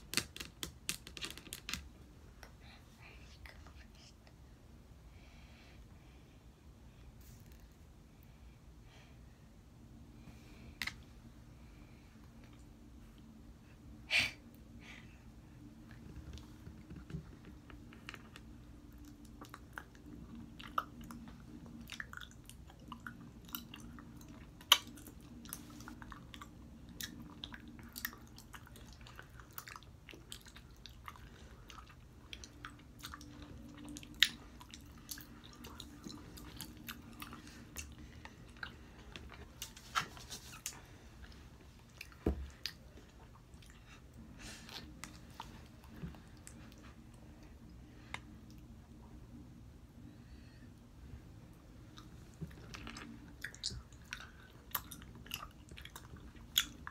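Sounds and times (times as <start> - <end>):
open-mouthed chewing smacks: 15.9 - 47.0, 51.8 - 56.9.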